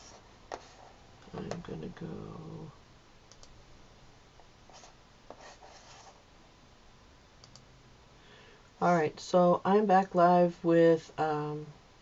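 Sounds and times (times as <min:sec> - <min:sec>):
mouse and keyboard clicks: 0:07.4 - 0:07.7.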